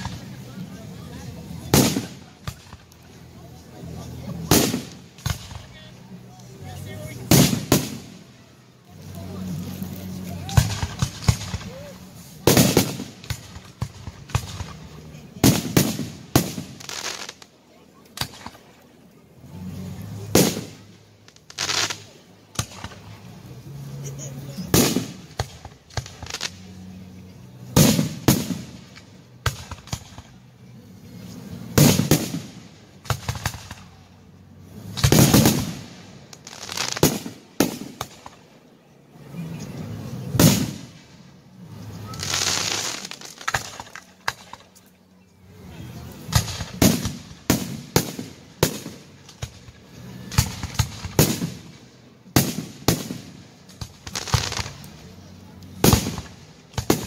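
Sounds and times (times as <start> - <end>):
firework crackling hiss: 0.0 - 18.7, 19.7 - 27.0, 27.6 - 38.6, 39.2 - 44.8, 46.0 - 57.0
firework booms: 1.7 - 2.8, 4.4 - 5.7, 7.3 - 8.2, 10.5 - 17.0, 20.3 - 20.8, 31.8 - 33.9, 35.0 - 36.1, 40.3 - 41.0.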